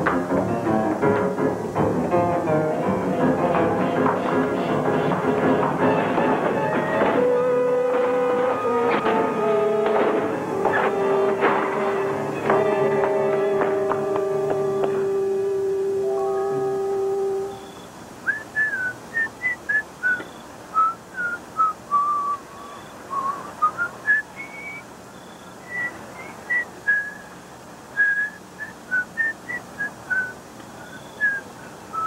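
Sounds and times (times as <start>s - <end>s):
held musical chord: 1.9s - 17.7s
person whistling a tune: 14.0s - 24.9s, 25.6s - 27.3s, 28.0s - 32.0s.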